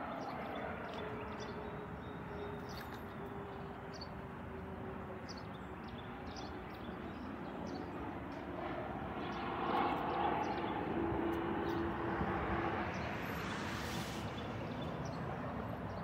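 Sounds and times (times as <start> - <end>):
distant jet airliner rumble: 0.0 - 16.0.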